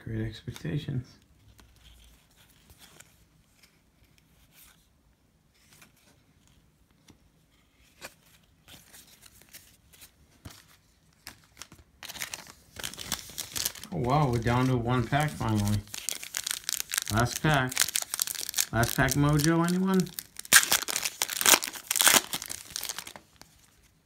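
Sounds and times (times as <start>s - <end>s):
cards being flipped through: 7.8s - 23.7s
foil wrapper crinkling and tearing: 11.3s - 23.7s.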